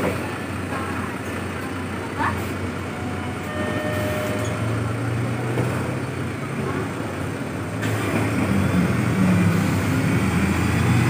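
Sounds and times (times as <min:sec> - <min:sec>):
bus engine idling: 0:00.0 - 0:11.0
two-note electronic tone: 0:03.4 - 0:04.7.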